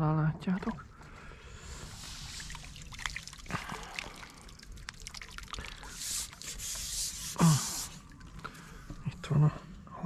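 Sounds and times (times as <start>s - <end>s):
water trickling and dripping: 0.4s - 9.2s
small water splashes: 1.7s - 9.0s.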